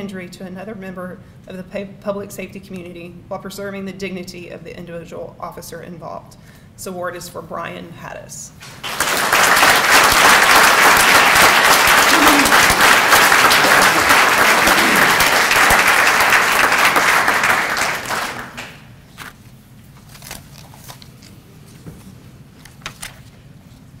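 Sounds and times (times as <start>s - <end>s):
audience applauding: 8.6s - 18.8s.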